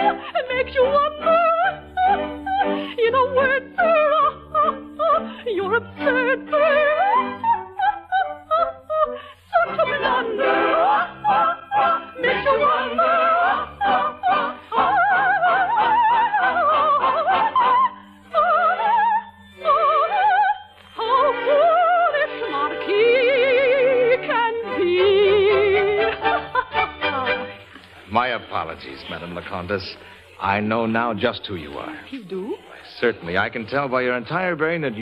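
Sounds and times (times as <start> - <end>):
soprano singing: 0.0 - 29.4.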